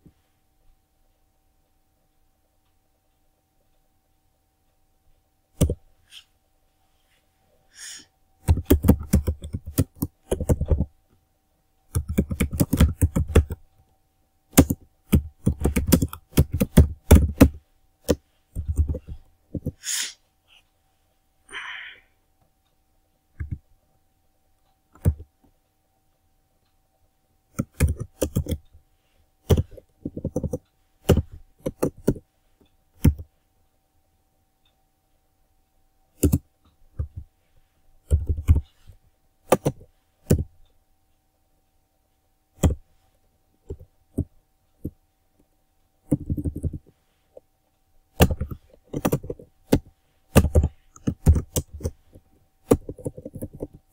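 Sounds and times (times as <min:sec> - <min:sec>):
typing on computer keyboard: 0:05.6 - 0:05.8, 0:08.4 - 0:11.0, 0:11.9 - 0:13.6, 0:14.5 - 0:19.8, 0:23.4 - 0:23.6, 0:24.9 - 0:25.3, 0:27.5 - 0:28.7, 0:29.4 - 0:32.2, 0:33.0 - 0:33.3, 0:36.2 - 0:37.3, 0:38.0 - 0:38.9, 0:39.5 - 0:40.5, 0:42.6 - 0:42.8, 0:46.1 - 0:47.0, 0:48.1 - 0:53.9.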